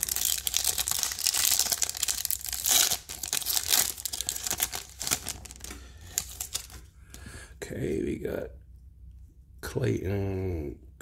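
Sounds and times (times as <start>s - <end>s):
foil wrapper tearing and crinkling: 0.0s - 6.8s.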